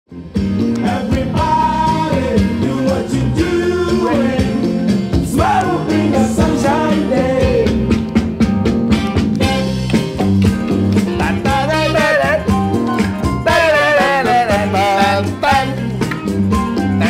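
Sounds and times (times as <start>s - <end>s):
band playing with drum beat: 0.2s - 17.0s
person singing: 0.8s - 7.9s, 11.1s - 12.6s, 13.4s - 15.9s.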